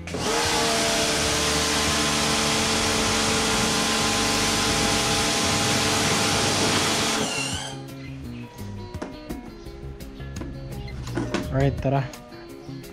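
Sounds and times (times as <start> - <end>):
pressure washer motor hum: 0.0 - 7.8.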